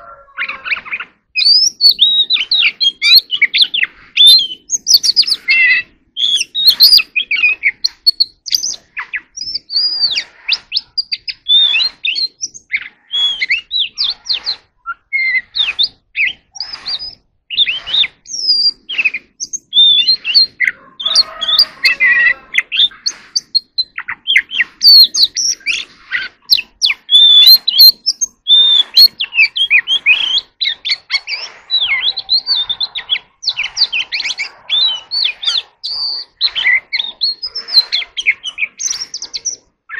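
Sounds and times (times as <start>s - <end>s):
bird whistles and chirps: 0.0s - 39.9s
harsh low bird call: 8.7s - 39.6s.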